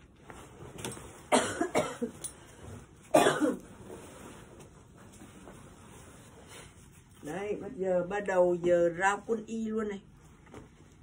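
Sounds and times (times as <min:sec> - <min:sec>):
woman coughing: 0:01.3 - 0:02.2, 0:03.1 - 0:03.6.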